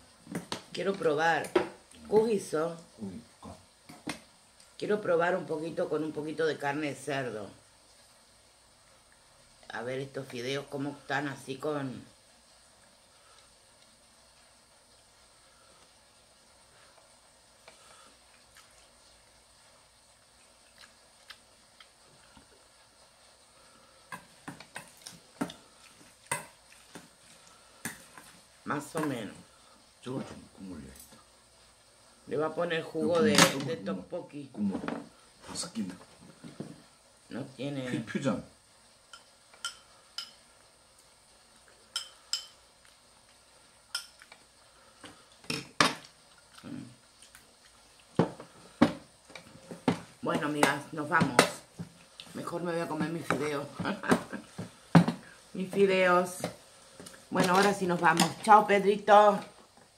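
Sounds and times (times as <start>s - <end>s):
cutlery clinking against bowls: 39.1s - 40.4s, 41.9s - 42.6s
chopsticks clinking on metal bowl: 41.9s - 42.6s.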